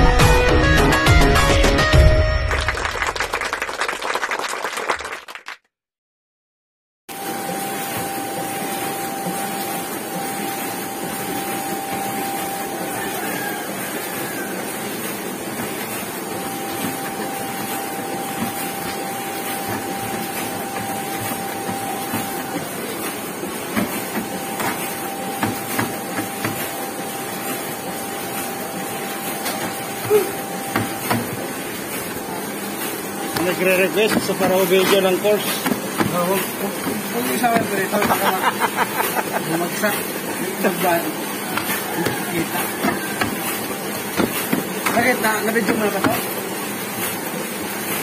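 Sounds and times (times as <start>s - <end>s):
constant mechanical whine: 7.1s - 48.0s
printing press clattering: 13.9s - 48.0s.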